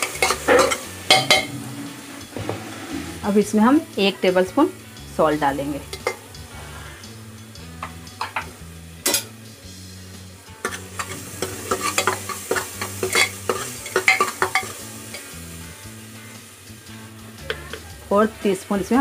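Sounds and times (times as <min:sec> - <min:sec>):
metal spoon scraping pot: 0:00.0 - 0:03.2, 0:10.6 - 0:14.8
light sizzle: 0:00.0 - 0:19.0.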